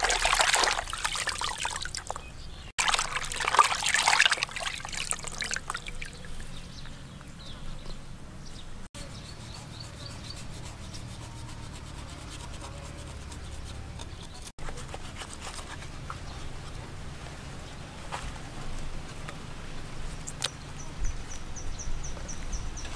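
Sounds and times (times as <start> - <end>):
water dripping: 0.0 - 6.6.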